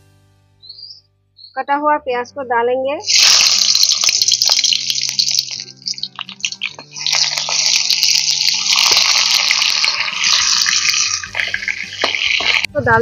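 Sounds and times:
onions sizzling in hot oil: 0:03.0 - 0:12.8.

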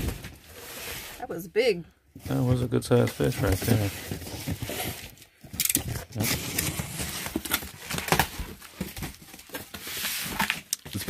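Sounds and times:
cardboard and paper rustling: 0:02.2 - 0:11.0.

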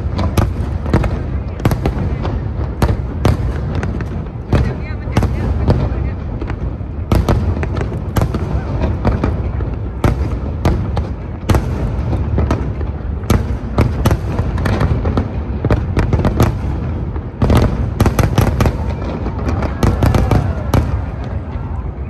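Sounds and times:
fireworks bangs and crackles: 0:00.0 - 0:22.0.

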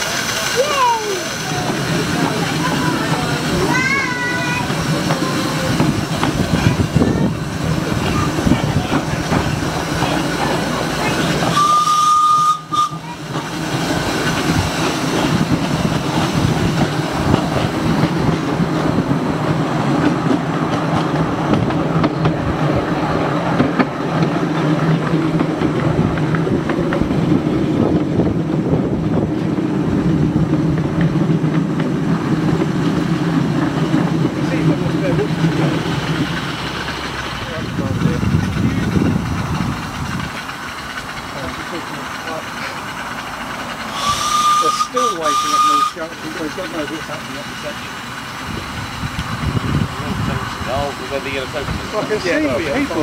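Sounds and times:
miniature train running on track: 0:00.0 - 0:53.0
train whistle blast: 0:11.5 - 0:13.1, 0:43.9 - 0:46.1.

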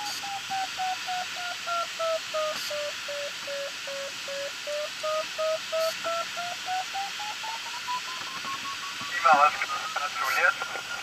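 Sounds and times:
airflow hiss: 0:00.0 - 0:07.6
variometer beeping: 0:00.0 - 0:10.2.

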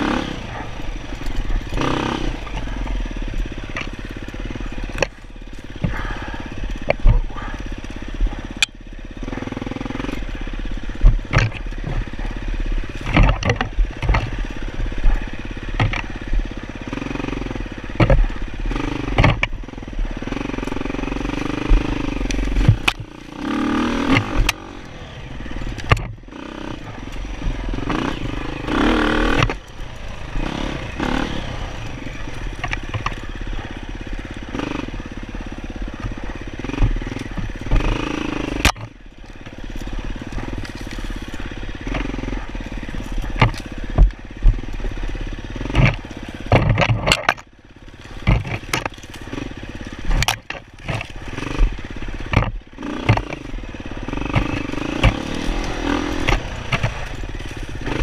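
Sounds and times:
dirt bike engine revving: 0:00.0 - 0:58.0
knocks and clatter from bike: 0:00.0 - 0:58.0.

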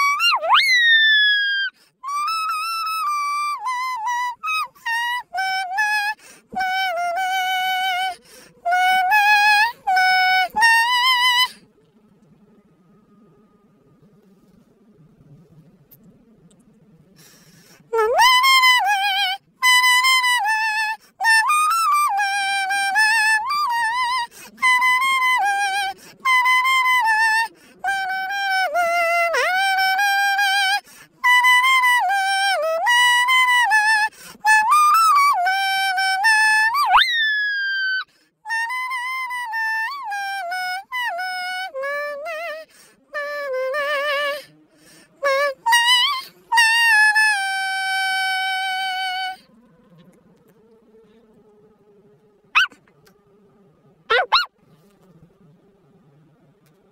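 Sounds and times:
pitch-edited dog voice singing: 0:00.0 - 0:11.6, 0:17.9 - 0:34.0, 0:34.6 - 0:44.5, 0:45.2 - 0:49.5, 0:52.6 - 0:52.8, 0:54.1 - 0:54.5.

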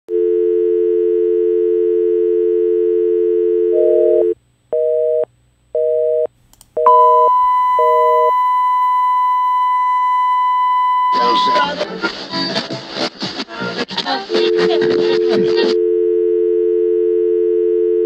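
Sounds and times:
busy signal beeping: 0:06.8 - 0:11.8, 0:15.8 - 0:18.0
steady high test tone: 0:06.8 - 0:11.8
telephone dial tone: 0:15.8 - 0:18.0.

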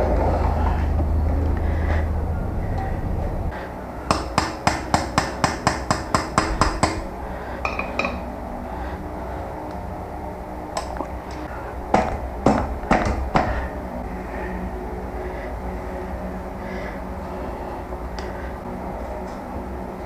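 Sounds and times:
tool knocks: 0:07.7 - 0:08.2.

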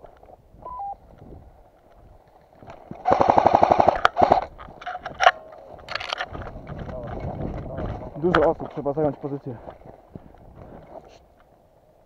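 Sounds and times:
airsoft gun firing: 0:03.0 - 0:04.5.

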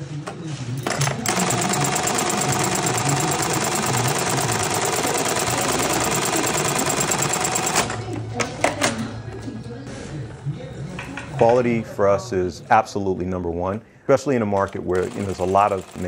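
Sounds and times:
buttonhole machine clattering: 0:00.8 - 0:09.0, 0:14.6 - 0:16.0.

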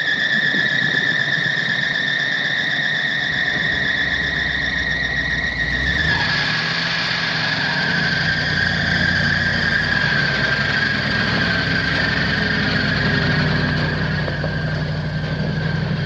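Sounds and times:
high-pitched whine: 0:00.0 - 0:16.0
truck engine idling: 0:02.4 - 0:16.0.

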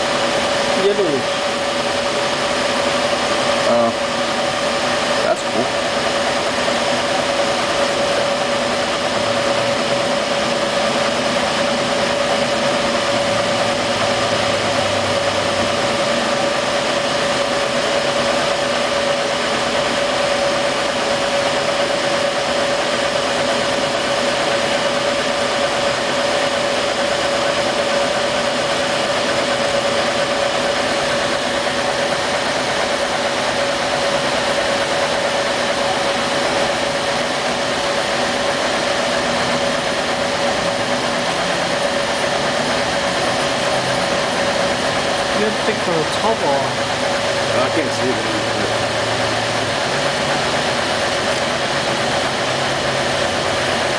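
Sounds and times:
laser engraver whirring: 0:00.0 - 0:53.9.

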